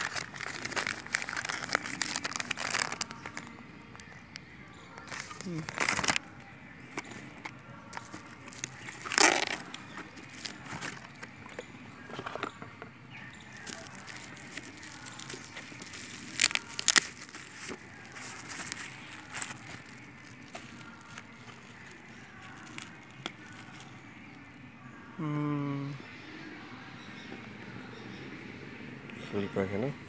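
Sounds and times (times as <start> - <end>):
plastic and cardboard packaging crinkling: 0.0 - 4.2, 4.9 - 6.3, 6.9 - 12.5, 13.3 - 24.6.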